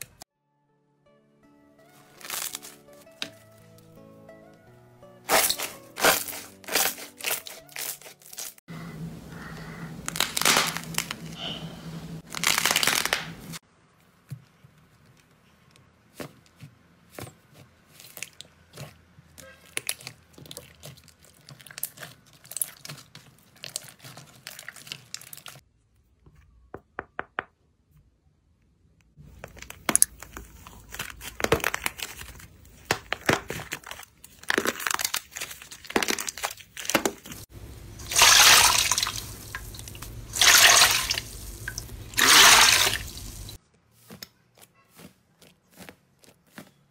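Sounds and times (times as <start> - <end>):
slime crackling: 5.3 - 8.6, 12.2 - 13.6, 17.9 - 25.6, 29.3 - 37.5.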